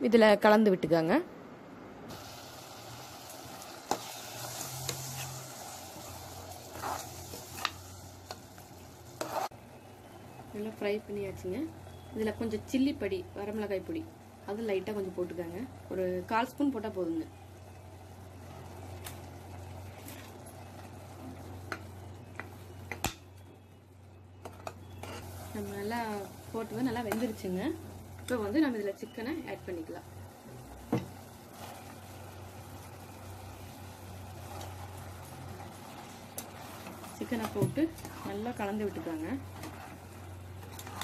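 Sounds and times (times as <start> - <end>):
food sizzling in a pot: 2.1 - 23.1, 24.6 - 41.0
ladle stirring: 3.6 - 9.6, 34.2 - 41.0.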